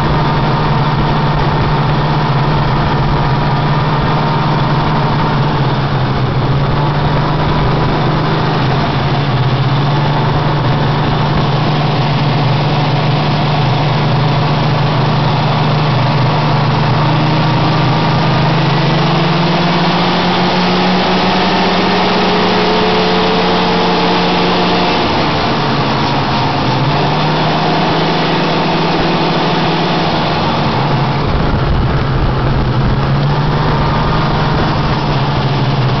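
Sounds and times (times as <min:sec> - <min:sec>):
deeper engine rumble: 0:00.0 - 0:36.0
snowmobile engine running: 0:00.0 - 0:36.0.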